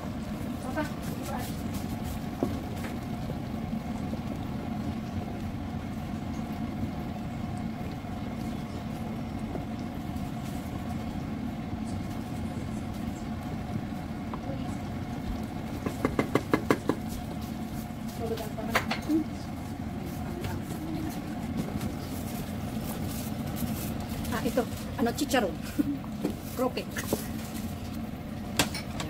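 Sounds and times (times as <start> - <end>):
low kitchen rumble and hum: 0.0 - 29.0
wooden spoon knocking on pot: 15.8 - 17.1.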